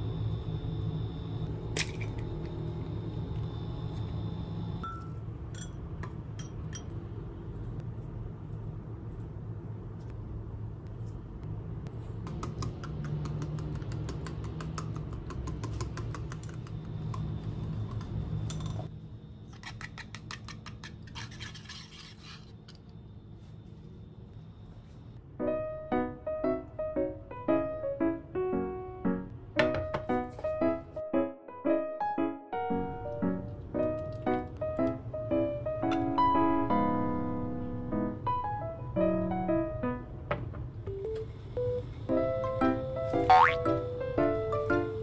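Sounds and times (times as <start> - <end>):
steady low hum: 0.0 - 19.6.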